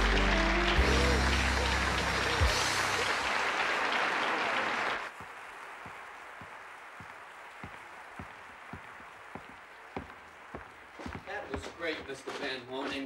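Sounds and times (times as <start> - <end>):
audience applause: 0.0 - 12.2
footsteps on wooden floor: 5.2 - 13.0.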